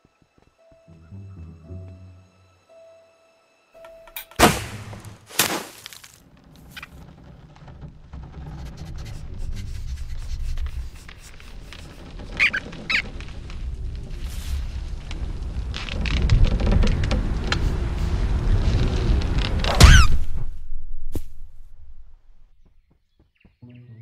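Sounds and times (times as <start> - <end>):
arrow thwacks: 4.4 - 5.9, 19.7 - 20.4
high cartoon squeaks: 8.6 - 13.1
low rumble: 13.0 - 22.6.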